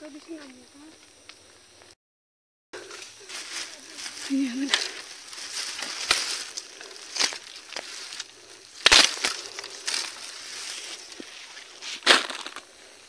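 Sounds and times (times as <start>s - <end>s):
bamboo leaves rustling: 2.8s - 13.0s
bamboo twigs snapping: 5.4s - 10.4s, 11.9s - 12.7s.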